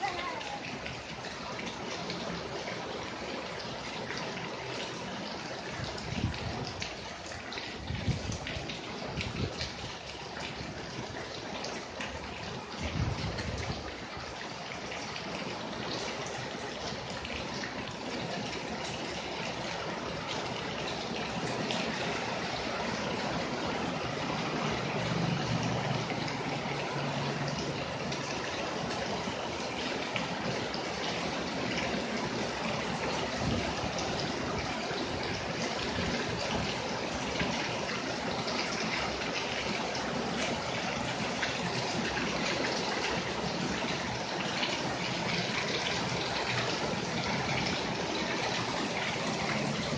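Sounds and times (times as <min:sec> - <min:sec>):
rain splashing on paving and puddles: 0:00.0 - 0:49.9.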